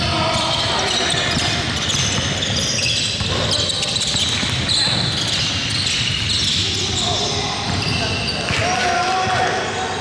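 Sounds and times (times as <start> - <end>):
shoe squeaks: 0.0 - 8.6
ball bouncing on gym floor: 3.1 - 6.1, 7.6 - 9.4.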